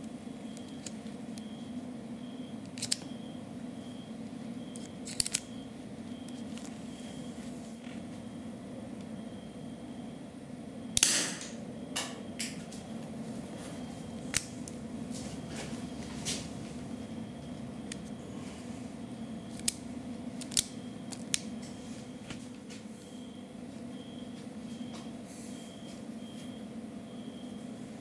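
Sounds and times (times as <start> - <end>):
steady low hum: 0.0 - 28.0
sharp metal snap: 11.0 - 11.6.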